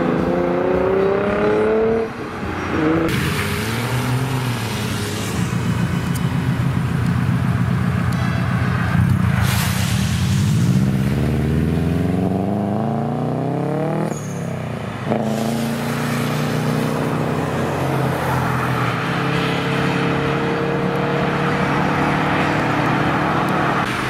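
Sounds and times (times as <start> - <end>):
car engine accelerating: 0.0 - 14.4, 15.0 - 24.0.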